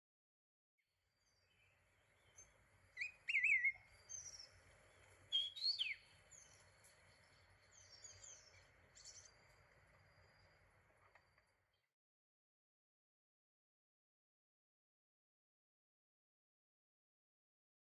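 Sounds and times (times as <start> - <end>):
high bird chirps: 2.2 - 9.4
bird whistled calls: 3.0 - 4.5, 5.3 - 6.5.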